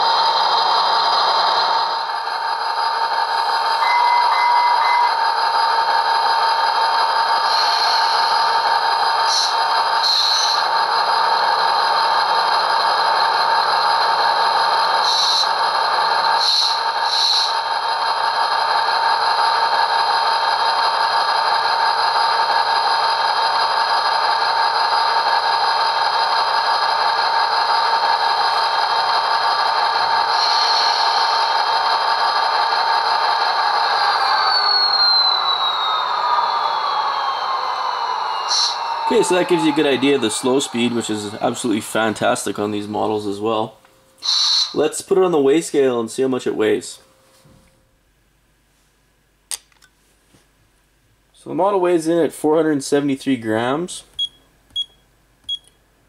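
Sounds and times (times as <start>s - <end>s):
diesel locomotive engine sound: 0.0s - 48.0s
short higher sounds: 33.8s - 43.4s.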